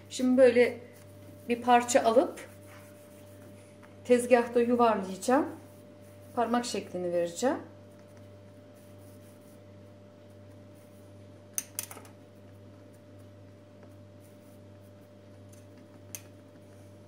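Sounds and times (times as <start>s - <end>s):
steady low hum: 0.0s - 17.0s
palms rubbing dough on stone: 0.8s - 4.5s.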